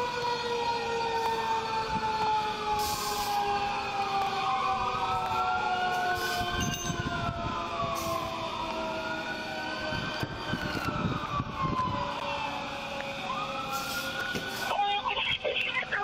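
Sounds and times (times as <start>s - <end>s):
rising and falling siren: 0.0s - 16.0s
steady siren tone: 0.0s - 16.0s.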